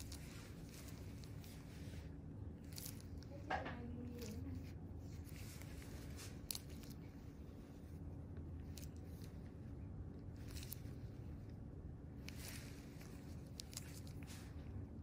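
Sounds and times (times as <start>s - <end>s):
gloved fingers rustling on skin: 0.0s - 3.5s, 4.1s - 15.0s
faint low hum: 0.0s - 15.0s.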